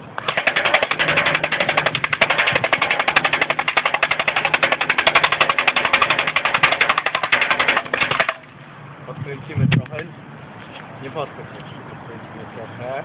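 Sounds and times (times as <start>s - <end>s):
airsoft gun firing full-auto: 0.2s - 8.5s.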